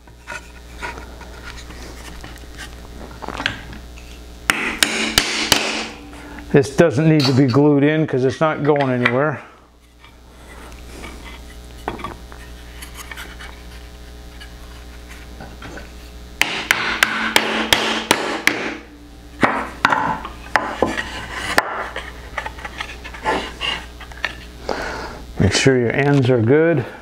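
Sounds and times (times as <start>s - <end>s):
low steady hum: 0.0s - 27.0s
hammer tapping nails into wood: 16.4s - 18.8s.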